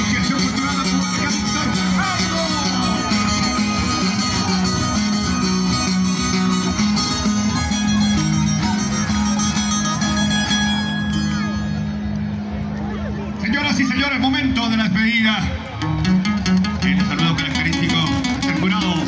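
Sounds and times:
dance music led by guitars: 0:00.0 - 0:11.3, 0:15.6 - 0:19.0.

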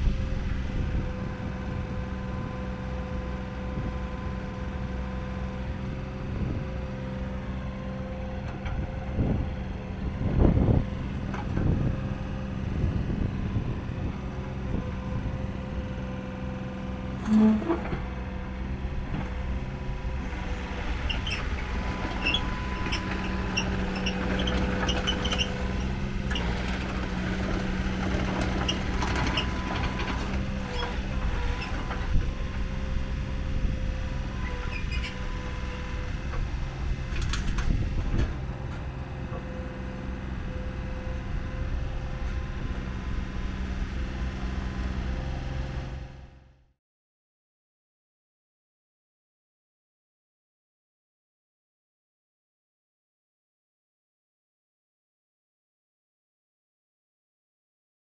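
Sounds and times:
mini excavator diesel running: 0:00.0 - 0:46.6
excavator clunks and clanks: 0:08.3 - 0:12.2, 0:17.0 - 0:32.9, 0:33.7 - 0:40.7.

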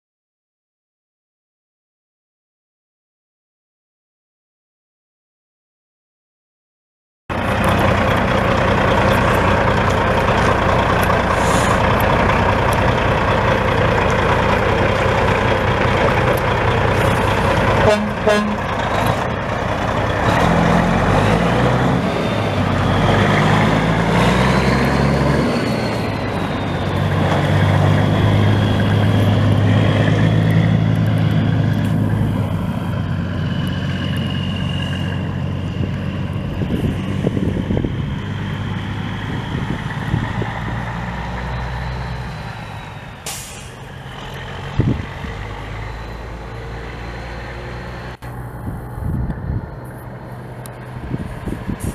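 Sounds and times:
diesel truck engine running: 0:07.3 - 0:51.9
high turbo whistle: 0:17.8 - 0:18.7
brief hiss: 0:43.2 - 0:43.8.

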